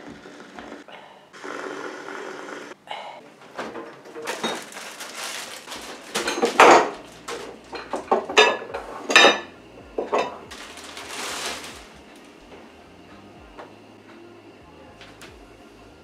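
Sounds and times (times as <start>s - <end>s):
plastic bag rustling: 3.4s - 9.4s, 10.0s - 12.6s
glass jars and dishes clattering: 3.6s - 11.7s.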